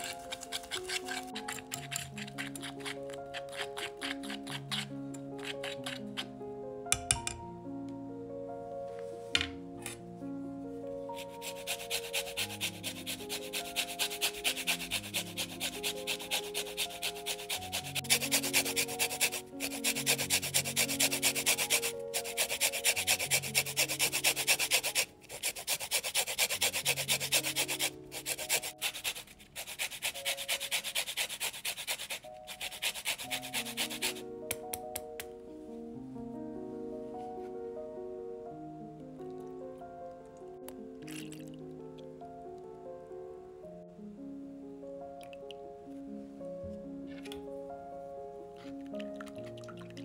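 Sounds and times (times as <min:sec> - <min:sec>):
kitchen utensil scraping: 0:00.0 - 0:06.3
soft background music: 0:00.0 - 0:50.0.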